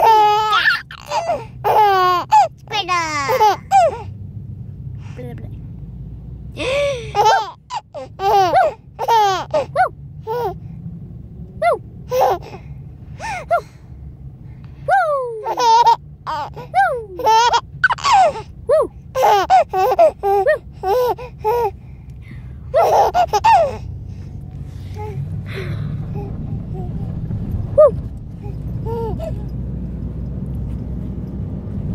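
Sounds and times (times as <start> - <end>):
baby laughing: 0.0 - 2.5, 3.3 - 4.0, 7.1 - 10.6, 11.6 - 12.6, 15.0 - 21.7, 22.7 - 23.9, 28.8 - 29.4
car interior hum: 0.0 - 31.9.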